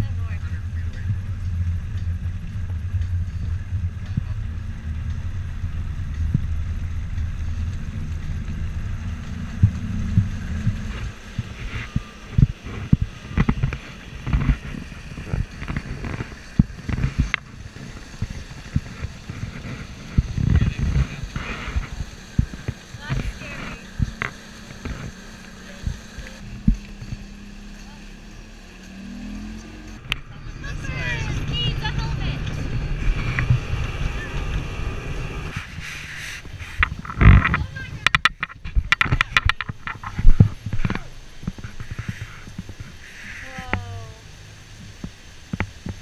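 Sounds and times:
motorboat engine hum: 0.0s - 46.0s
boat thumping over choppy water: 3.7s - 27.4s.

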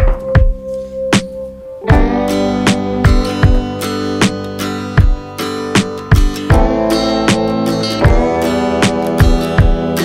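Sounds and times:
strummed acoustic guitar: 1.9s - 10.0s.

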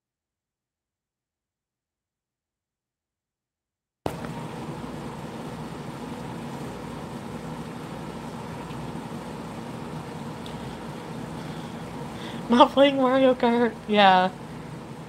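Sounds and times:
low hum with hiss: 4.1s - 15.0s.

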